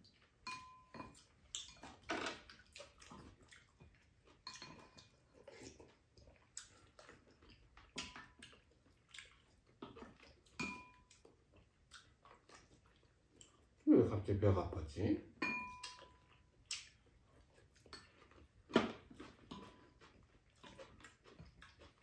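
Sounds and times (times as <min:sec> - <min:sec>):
slurping and chewing: 0:00.0 - 0:13.9, 0:15.6 - 0:22.0
utensils tapping ceramic bowls: 0:00.5 - 0:01.2, 0:10.6 - 0:11.0, 0:15.4 - 0:16.2.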